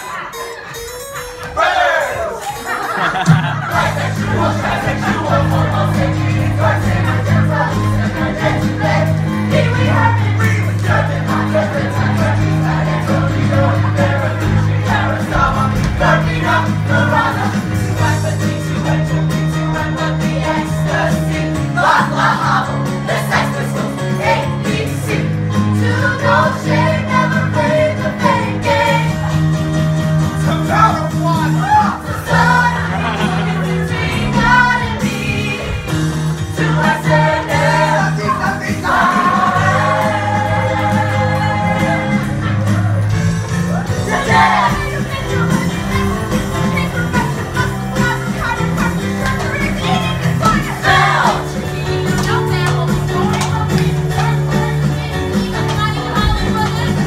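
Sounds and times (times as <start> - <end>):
group singing show tune: 1.4 - 57.0
instrumental backing with bass: 2.8 - 57.0.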